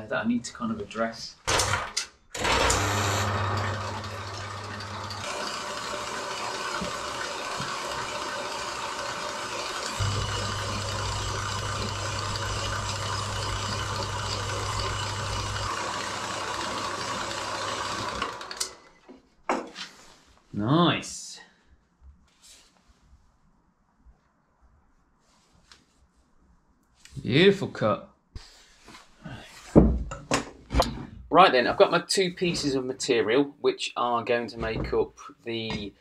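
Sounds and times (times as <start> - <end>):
band saw cutting steel: 2.4 - 18.8
motor hum: 2.4 - 18.8.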